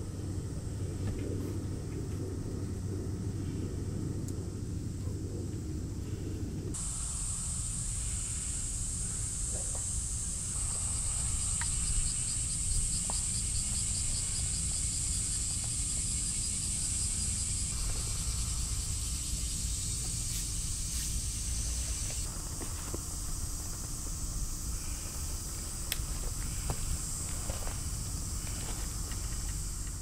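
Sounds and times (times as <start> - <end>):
low rumble: 0.0 - 8.3, 16.9 - 30.0
cicadas singing: 0.0 - 30.0
pulsing insect call: 0.0 - 30.0.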